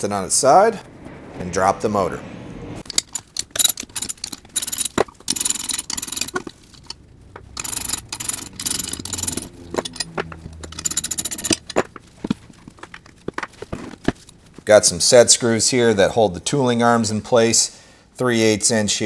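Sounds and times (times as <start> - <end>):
socket ratchet clicking: 2.9 - 11.8
sharp metal clinks: 7.6 - 11.7.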